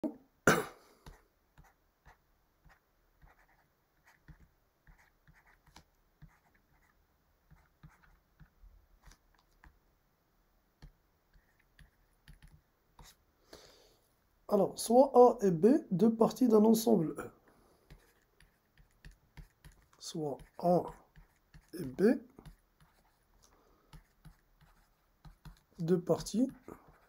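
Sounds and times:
stylus writing on a tablet: 0:01.0 - 0:09.8, 0:10.8 - 0:13.2, 0:17.8 - 0:27.0.

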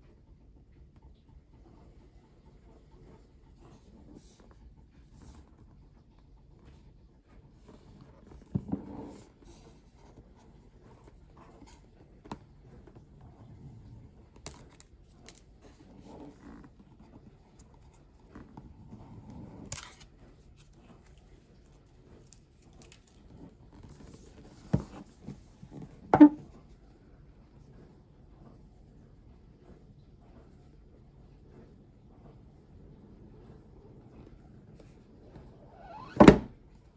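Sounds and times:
cardboard rustling: 0:14.2 - 0:26.4.

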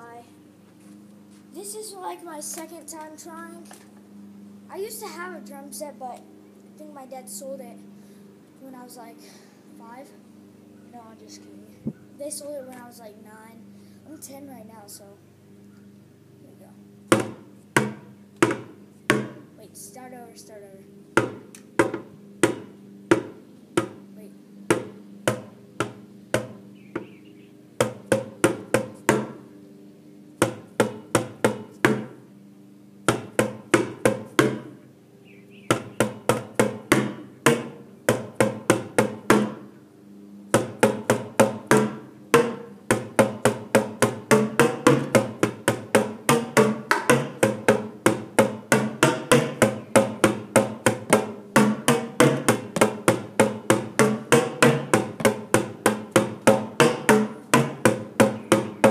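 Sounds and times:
drumsticks beating plastic buckets: 0:40.6 - 0:58.9.

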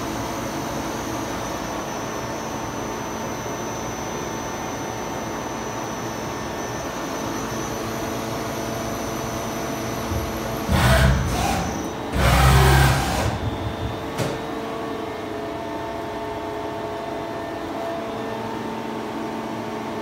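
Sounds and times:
lathe machine hum: 0:00.0 - 0:18.5.

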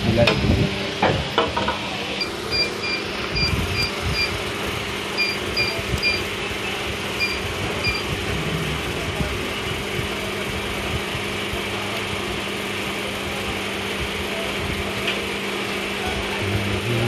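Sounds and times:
moulding machine humming: 0:00.0 - 0:17.0
short high beeps: 0:02.2 - 0:04.4, 0:05.2 - 0:06.2, 0:07.2 - 0:08.1.

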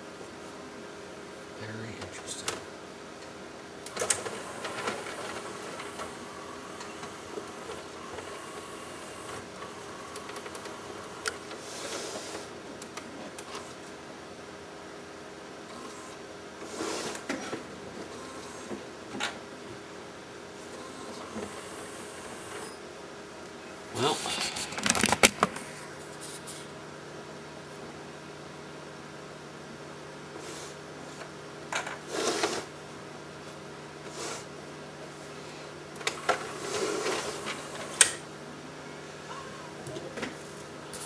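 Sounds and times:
disc player motor whir: 0:03.8 - 0:14.0, 0:15.6 - 0:19.4, 0:20.6 - 0:22.8, 0:36.0 - 0:38.3.

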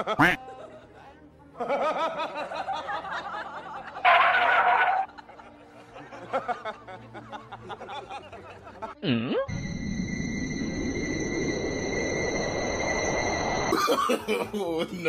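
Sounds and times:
swooping pitch sound: 0:09.5 - 0:13.8
person chuckling and laughing: 0:13.7 - 0:15.0.

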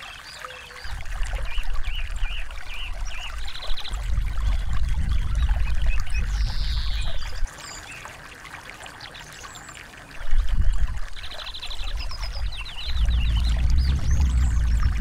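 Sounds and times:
songbirds chirping: 0:00.0 - 0:08.1, 0:09.0 - 0:15.0
stream trickling over rocks: 0:00.0 - 0:15.0
deep rumble: 0:03.9 - 0:07.4, 0:11.8 - 0:15.0.

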